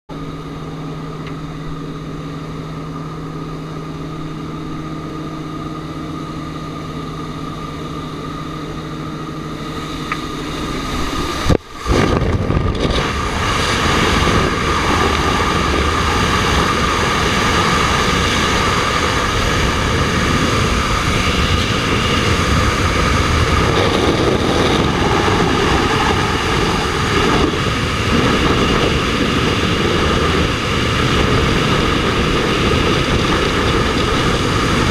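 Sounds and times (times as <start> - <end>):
aircraft engine drone: 0.1 - 34.9
wind rushing across microphone: 8.8 - 34.9.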